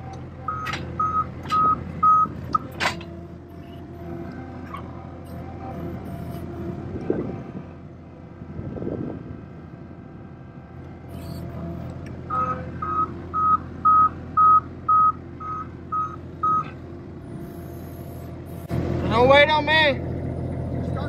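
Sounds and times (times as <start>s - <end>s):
reversing alarm beeping: 0.0s - 7.3s, 11.1s - 16.7s
loader engine running: 0.0s - 21.0s.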